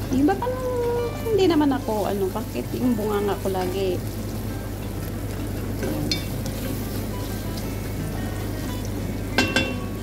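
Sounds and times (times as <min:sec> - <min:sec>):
vegetables sizzling in a pot: 0:00.0 - 0:10.0
spatula knocking on pot: 0:09.4 - 0:09.9.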